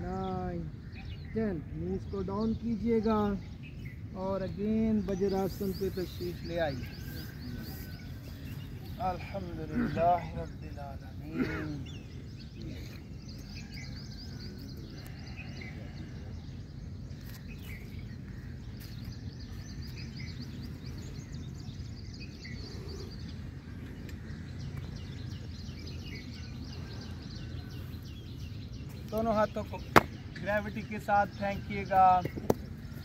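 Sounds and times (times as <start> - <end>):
birds chirping: 0.0 - 33.0
low outdoor rumble: 0.0 - 33.0.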